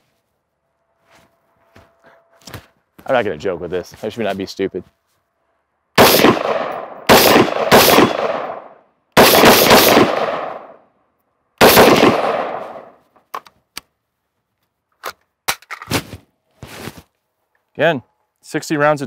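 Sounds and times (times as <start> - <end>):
gunshots with echo: 6.0 - 10.8, 11.6 - 13.0.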